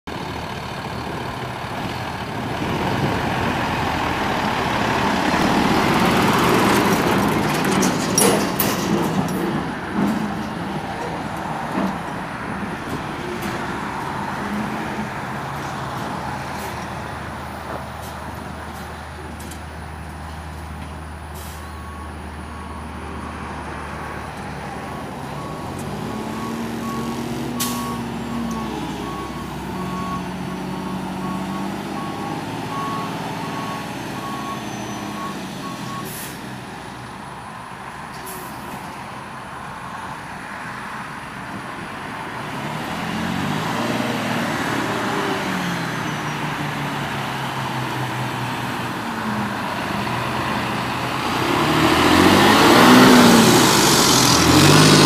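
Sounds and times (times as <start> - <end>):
diesel truck engine running: 0.1 - 38.1, 38.7 - 55.0
air brake releases: 21.4 - 21.8, 27.6 - 27.9, 36.0 - 36.4, 38.2 - 38.8
reversing alarm beeping: 21.4 - 23.6, 25.4 - 36.3.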